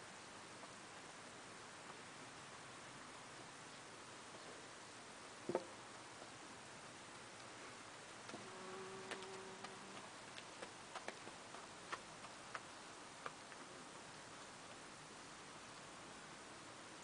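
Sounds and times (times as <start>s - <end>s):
faint low hum: 0.0s - 17.0s
hooves on frozen ground: 8.2s - 14.0s.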